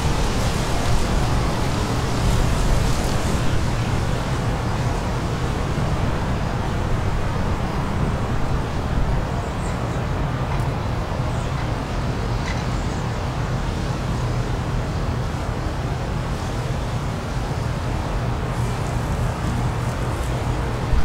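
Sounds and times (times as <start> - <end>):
wind blowing steadily: 0.0 - 21.0.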